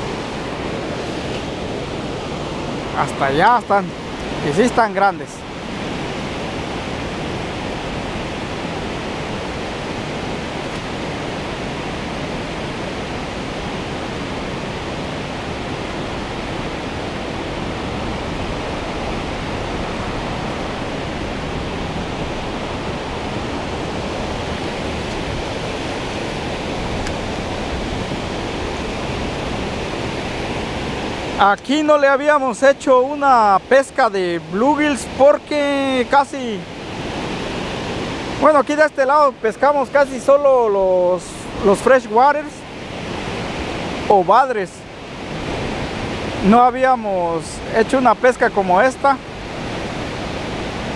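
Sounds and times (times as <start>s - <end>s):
river water rushing: 0.0s - 50.9s.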